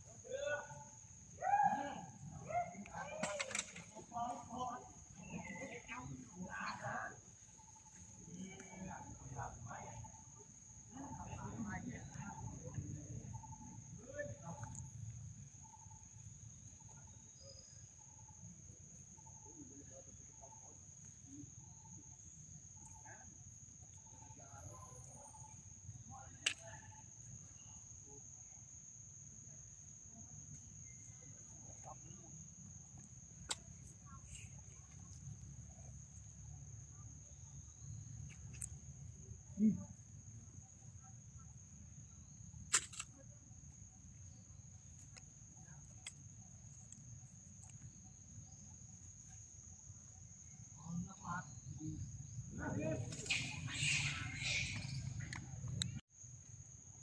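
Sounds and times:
sharp click: 26.4 - 26.7, 42.7 - 43.1
high-pitched insect drone: 43.1 - 56.0.

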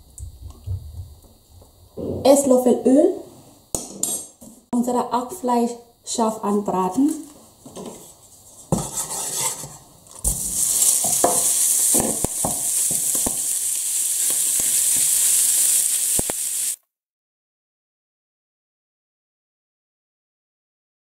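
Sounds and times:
wooden spatula scraping a pan: 7.6 - 13.4
meat sizzling in hot oil: 10.0 - 16.8.

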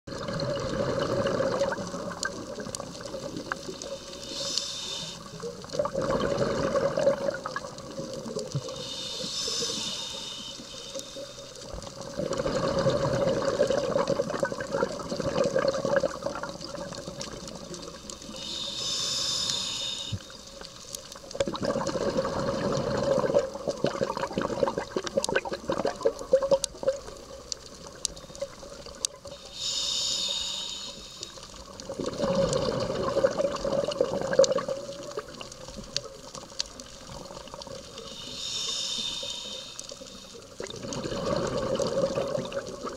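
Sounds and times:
exhaled air bubbling underwater: 0.1 - 42.9
regulator inhale hiss: 3.5 - 5.8, 8.5 - 11.8, 17.6 - 21.2, 29.2 - 31.8, 37.6 - 40.6.

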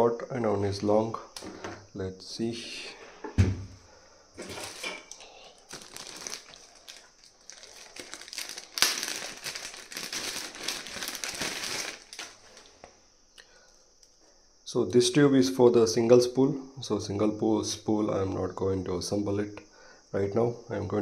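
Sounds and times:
thump: 3.2 - 3.8
plastic bags crinkling: 4.4 - 12.8.

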